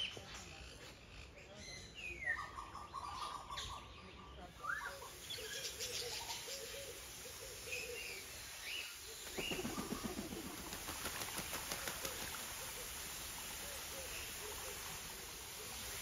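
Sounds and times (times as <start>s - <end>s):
birds whistling calls: 0.0s - 10.7s.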